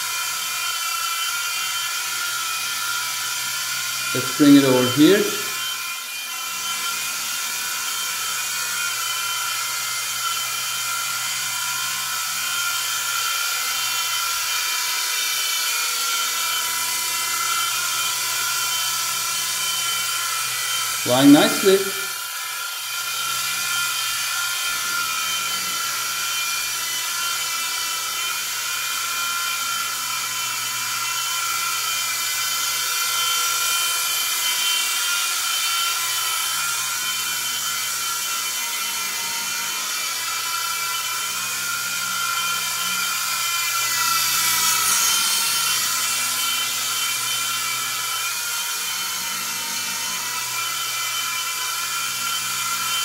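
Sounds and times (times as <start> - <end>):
high-pitched electric motor whine: 0.0 - 53.0.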